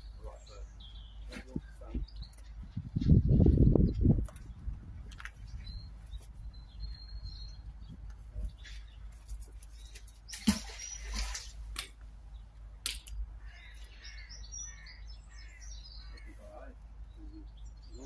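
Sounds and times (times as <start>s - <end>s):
water washing: 10.3s - 11.9s
magnet splashing into water: 10.3s - 12.0s.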